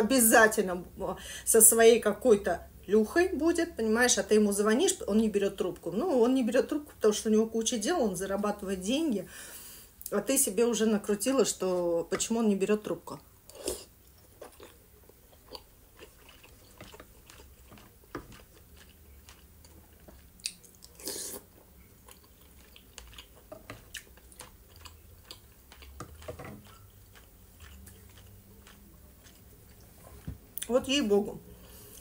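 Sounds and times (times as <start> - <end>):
chewing and wet mouth sounds: 13.5 - 30.7.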